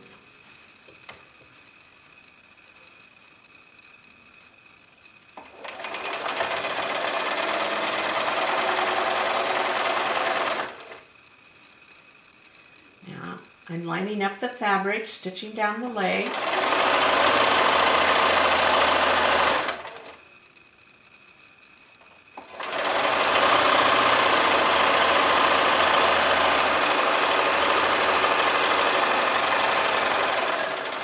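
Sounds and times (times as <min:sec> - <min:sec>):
sewing machine stitching: 0:05.4 - 0:11.1, 0:16.1 - 0:20.2, 0:22.4 - 0:31.0.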